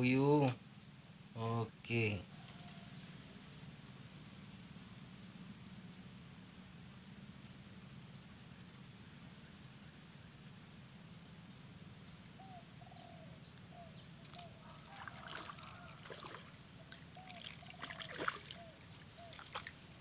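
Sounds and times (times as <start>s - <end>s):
fish splashing in water: 14.2s - 20.0s.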